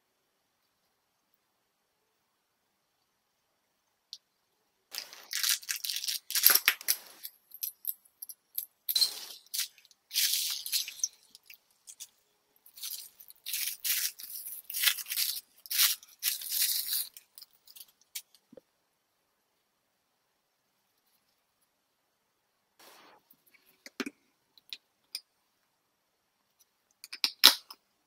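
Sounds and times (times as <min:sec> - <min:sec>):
plastic packaging crinkling: 0:04.9 - 0:07.3, 0:09.2 - 0:12.1, 0:12.7 - 0:18.3.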